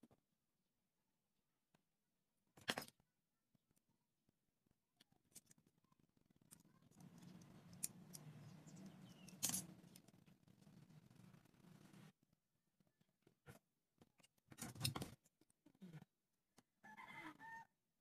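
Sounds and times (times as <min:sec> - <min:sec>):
craft tool clicks and scrapes: 0:06.5 - 0:12.1.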